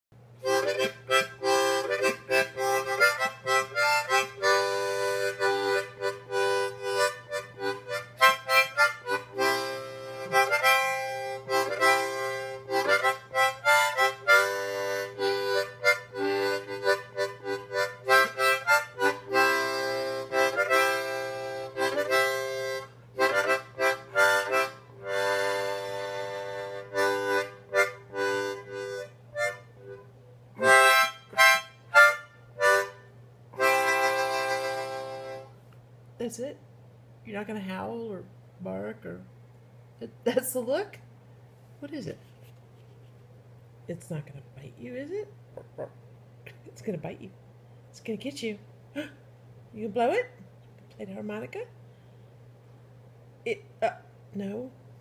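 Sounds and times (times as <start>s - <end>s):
harmonica playing: 0.4s - 35.6s.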